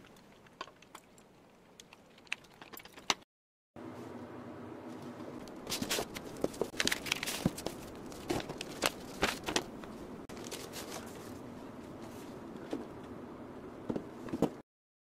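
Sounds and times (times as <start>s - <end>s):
paper crinkling: 5.4s - 11.4s.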